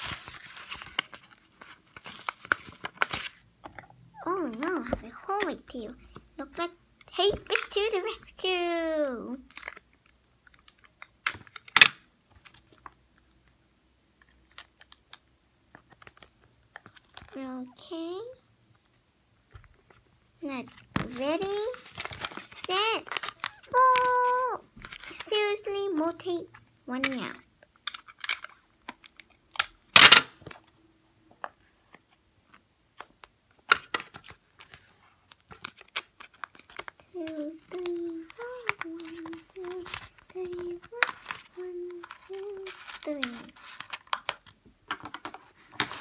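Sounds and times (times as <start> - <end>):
tape and paper crinkling: 0.0 - 3.4, 7.2 - 8.4, 9.0 - 13.6, 14.2 - 17.4, 19.6 - 26.4, 27.8 - 30.8, 32.5 - 46.0
rustling: 18.6 - 26.6, 33.9 - 46.0.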